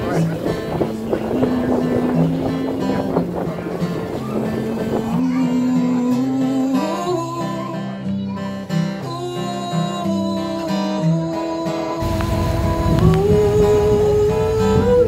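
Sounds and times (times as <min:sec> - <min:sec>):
acoustic guitar music: 0:00.0 - 0:15.0
low rushing noise: 0:12.0 - 0:15.0.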